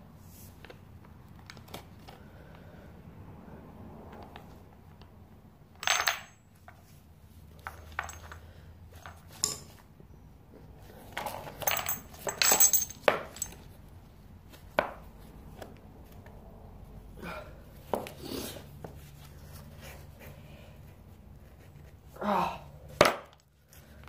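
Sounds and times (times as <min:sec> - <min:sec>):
metal bike parts clattering: 0:05.8 - 0:06.4, 0:07.6 - 0:09.9, 0:11.2 - 0:13.7.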